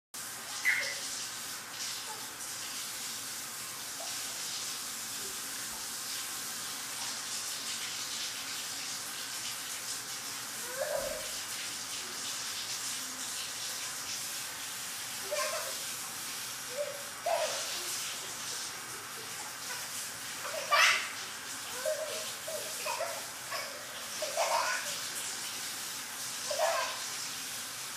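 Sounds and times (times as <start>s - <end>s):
baby vocal sounds: 10.6s - 11.4s, 15.2s - 15.9s, 16.7s - 25.1s, 26.5s - 27.0s.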